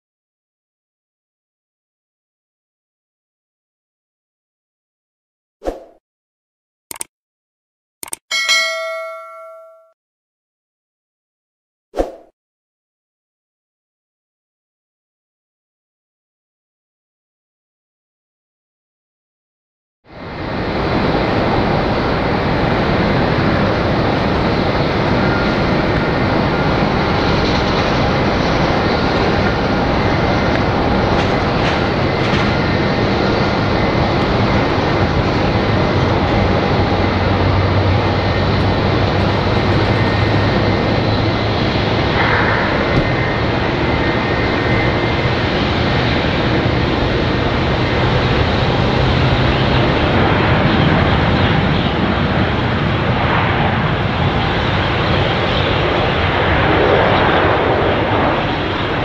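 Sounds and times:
airliner jet engine noise: 20.1 - 59.0.

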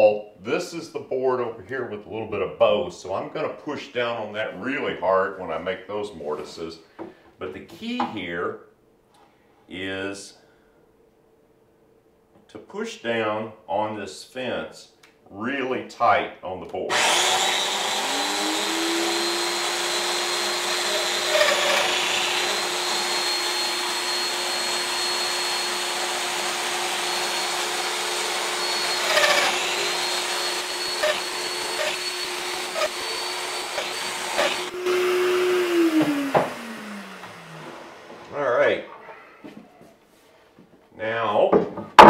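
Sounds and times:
power joiner whining: 16.9 - 38.4.

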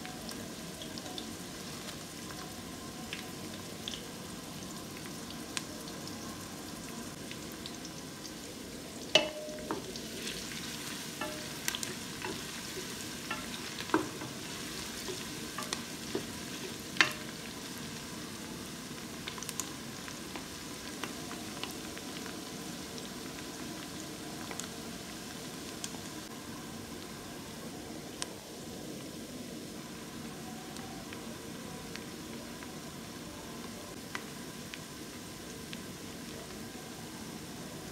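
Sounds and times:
onions sizzling in hot oil: 0.0 - 37.9
spoon knocking against pot: 9.2 - 9.9
wooden spoon stirring: 9.2 - 17.6.

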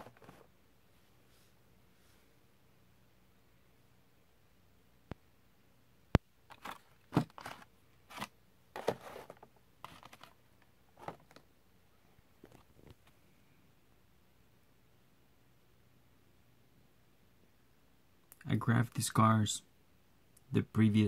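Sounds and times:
plastic and cardboard crinkles: 6.5 - 10.4, 11.0 - 11.4.

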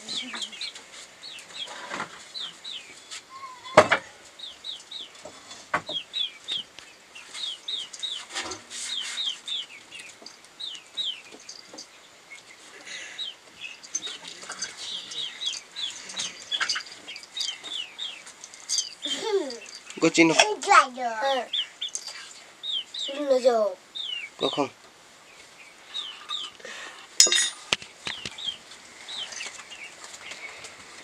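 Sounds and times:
chicks peeping: 0.0 - 20.4, 21.3 - 27.1, 27.8 - 31.0.

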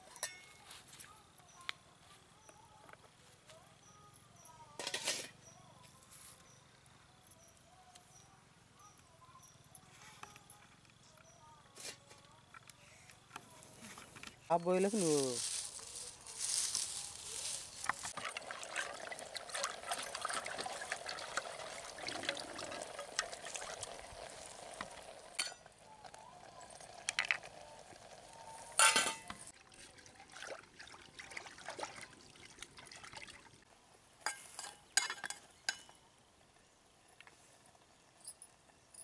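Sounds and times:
liquid pouring into metal pot: 18.1 - 33.6
spoon clinking against pot: 25.4 - 25.6, 28.8 - 29.4, 34.2 - 36.0.

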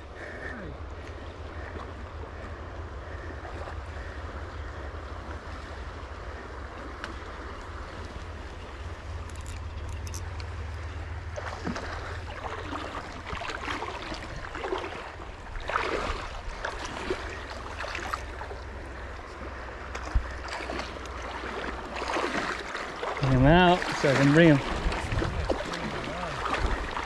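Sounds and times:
wind rumble on microphone: 0.0 - 20.5, 23.2 - 27.0
flowing river water: 0.0 - 27.0
fish splashing in water: 9.4 - 27.0.

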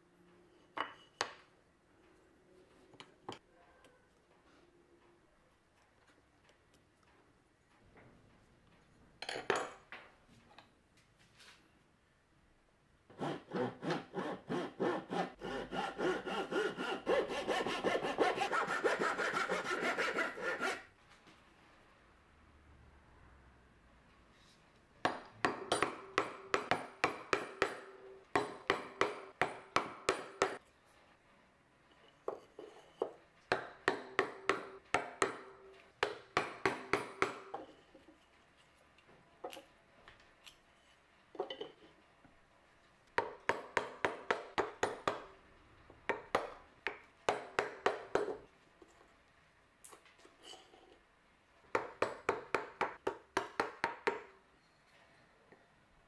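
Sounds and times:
chisel being struck: 25.1 - 30.6, 33.5 - 37.6, 43.2 - 45.3, 46.1 - 48.4, 51.8 - 54.3.

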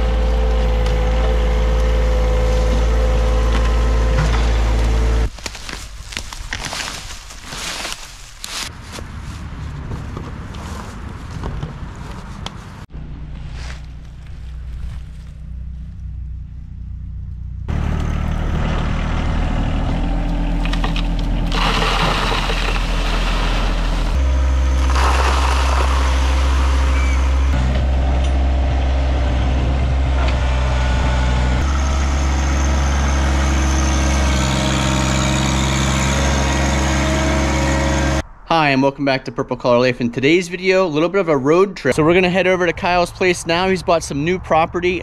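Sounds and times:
tractor diesel engine running: 0.0 - 11.2, 12.8 - 38.3
loose fill pouring from bucket: 21.5 - 24.1, 24.8 - 26.6.

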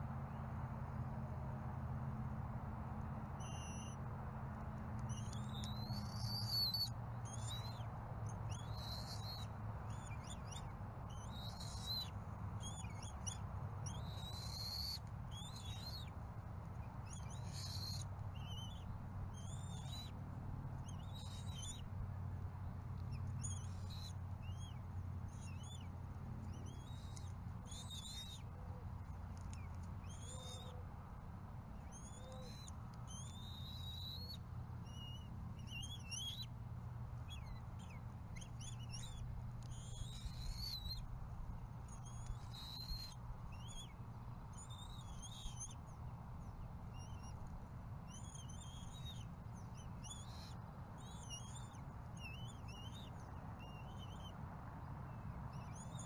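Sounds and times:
high-pitched bird calls: 26.4 - 28.4, 29.4 - 30.8, 31.8 - 36.5, 37.3 - 41.0, 49.8 - 54.3.

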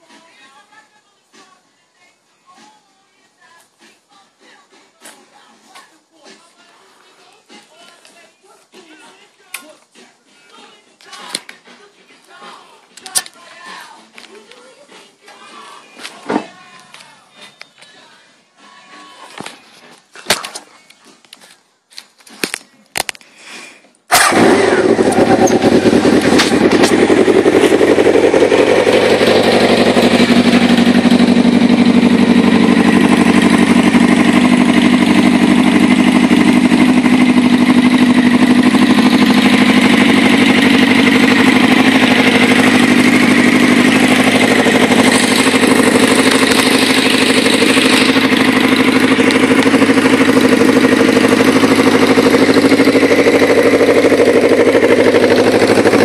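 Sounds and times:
motorcycle engine idling: 24.1 - 56.0.

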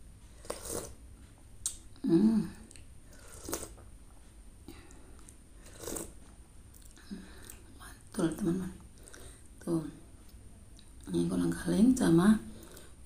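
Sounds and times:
broth being sipped: 0.4 - 1.0, 3.1 - 3.8, 5.6 - 6.2
wet mouth clicks and smacks: 1.6 - 1.8.

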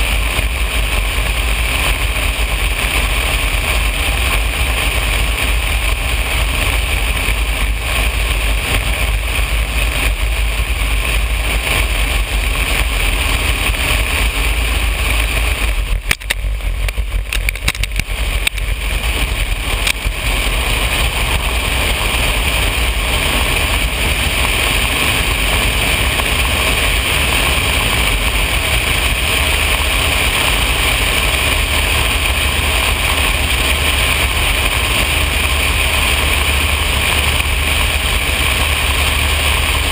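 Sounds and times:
propeller plane engine drone: 0.0 - 39.9
sharp clicks and knocks: 15.6 - 18.7, 19.8 - 20.1.

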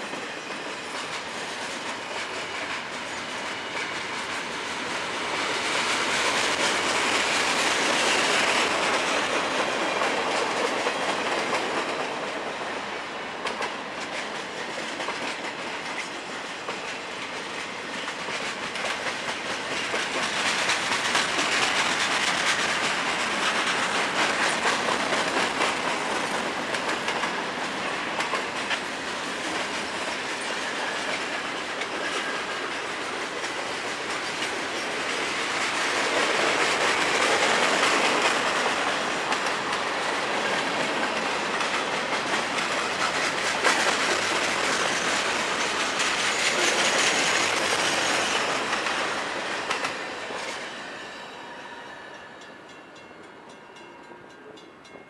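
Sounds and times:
freight train wheels rumbling: 0.0 - 55.0
wheels clicking over rail joints: 13.4 - 50.7.

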